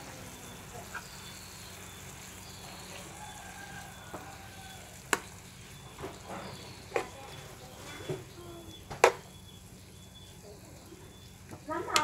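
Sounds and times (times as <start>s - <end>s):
food sizzling in frying pan: 0.0s - 12.0s
utensil knocking pan: 8.9s - 9.3s.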